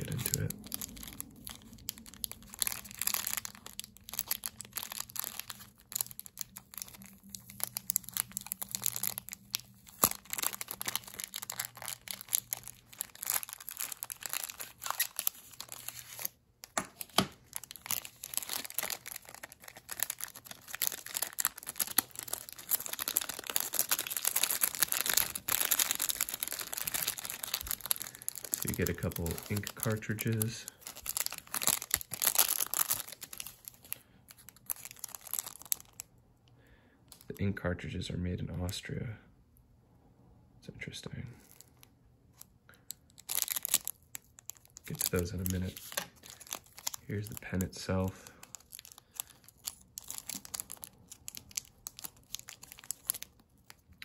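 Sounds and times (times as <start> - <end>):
plastic bag crinkling: 0.0 - 36.1, 41.4 - 54.0.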